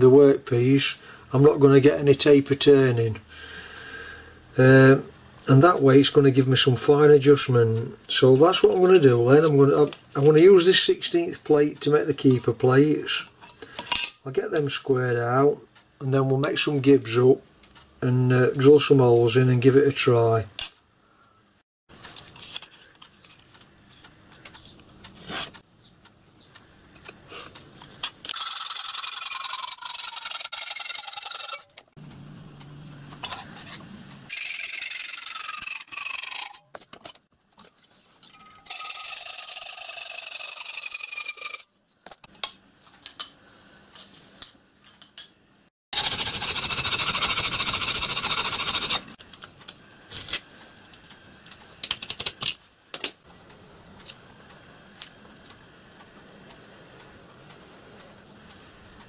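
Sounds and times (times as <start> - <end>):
handling scrapes and clicks: 21.9 - 25.6
hacksaw cutting steel: 28.3 - 31.8, 34.3 - 36.6, 38.4 - 41.6, 46.0 - 49.2.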